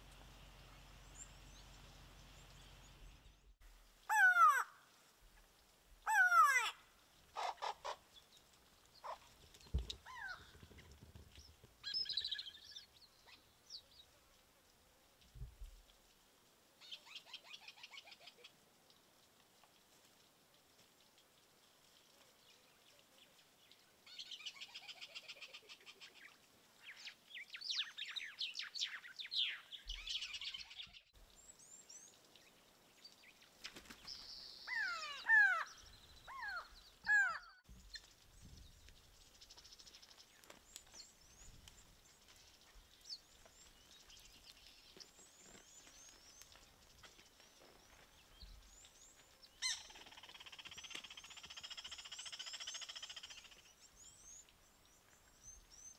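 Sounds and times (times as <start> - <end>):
birds chirping and trilling: 33.9 - 41.6, 42.2 - 54.5.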